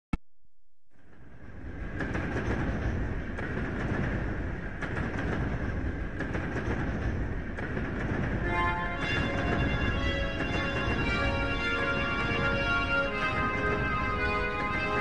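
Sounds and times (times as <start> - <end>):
knocks and rattles: 1.0 - 15.0
music: 8.4 - 15.0.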